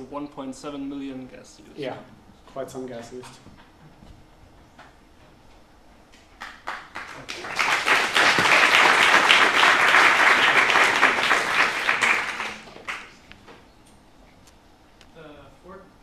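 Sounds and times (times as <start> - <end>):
audience applauding: 6.4 - 13.2.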